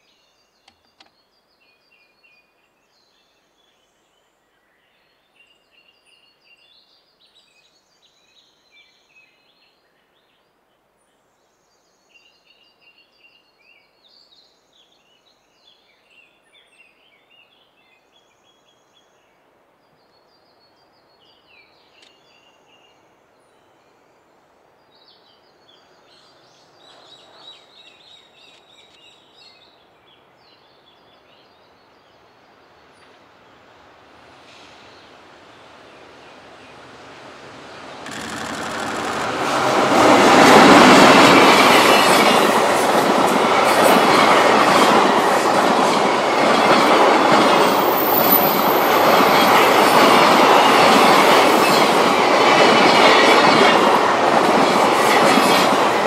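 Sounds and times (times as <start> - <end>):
freight train approaching: 32.2 - 56.0.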